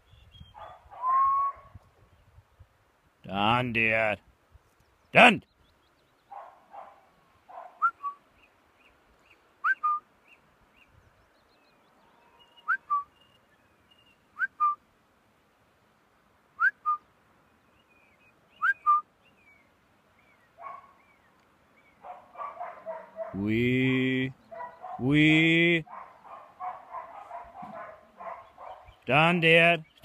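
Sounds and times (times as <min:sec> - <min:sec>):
shepherd's two-note whistles: 0:01.0 - 0:01.7, 0:07.8 - 0:08.2, 0:09.6 - 0:10.0, 0:12.6 - 0:13.1, 0:18.6 - 0:19.0.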